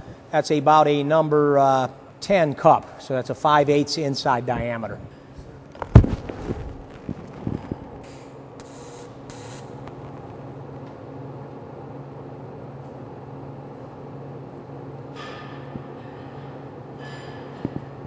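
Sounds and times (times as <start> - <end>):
welding arc humming: 5.4 - 11.1
welding arc hiss: 6.9 - 10.0.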